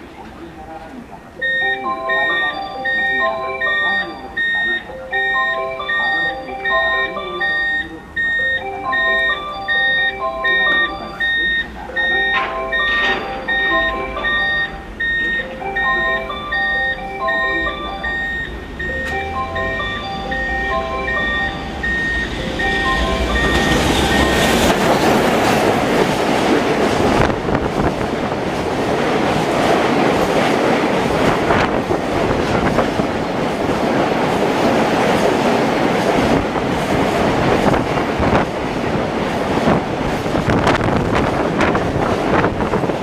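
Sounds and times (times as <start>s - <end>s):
freight train rumbling on rails: 0.0s - 43.0s
train wheels clacking: 6.8s - 16.7s, 17.3s - 43.0s.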